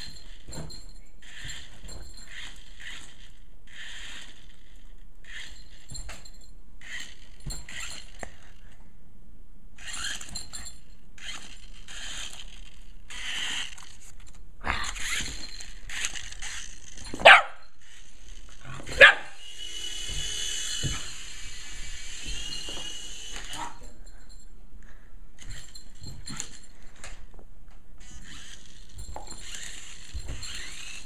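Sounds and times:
dog yipping and whining: 17.0s - 17.7s, 18.6s - 19.4s
dog barking sharply: 17.2s - 17.6s, 18.9s - 19.4s.

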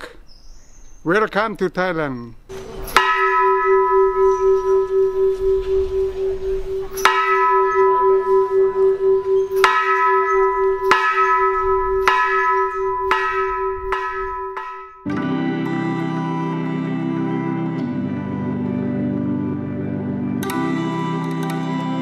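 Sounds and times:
large bell strikes: 2.9s - 15.1s
background music: 15.0s - 22.0s.

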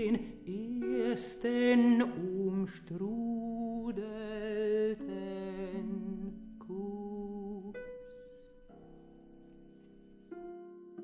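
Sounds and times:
person singing with vibrato: 0.0s - 8.6s.

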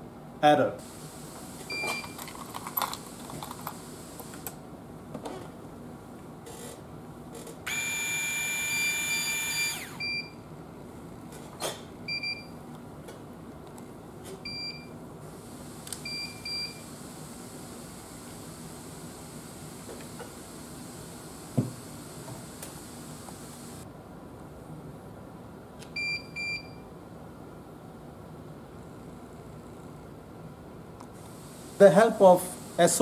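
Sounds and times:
electric screwdriver whine: 7.7s - 10.2s.

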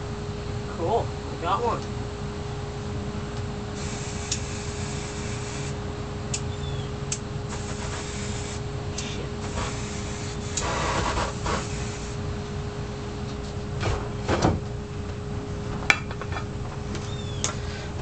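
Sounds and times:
steady low hum: 0.0s - 18.0s
aerosol spray can hissing: 3.8s - 5.8s, 7.5s - 12.2s.

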